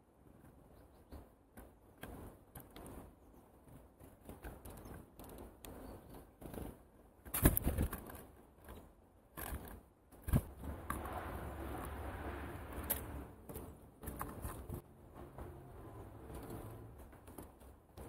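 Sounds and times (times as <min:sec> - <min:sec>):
birds pecking at feeder: 0:00.2 - 0:18.0
steady rushing noise: 0:10.2 - 0:18.0.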